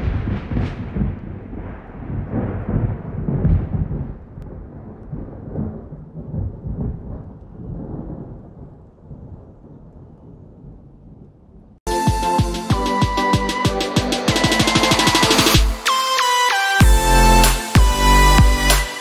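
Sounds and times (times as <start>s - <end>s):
thunder rumbling: 0.0s - 11.8s.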